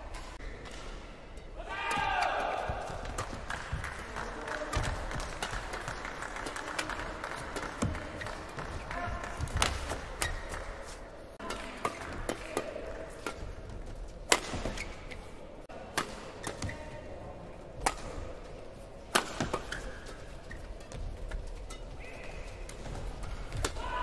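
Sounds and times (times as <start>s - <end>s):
rackets striking shuttlecock: 0.1s - 15.2s, 17.8s - 18.3s, 19.1s - 20.2s, 22.6s - 23.9s.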